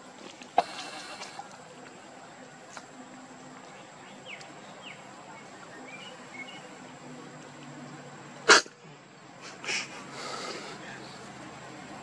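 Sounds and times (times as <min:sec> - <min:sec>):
faint bird chirps: 0:03.8 - 0:06.8.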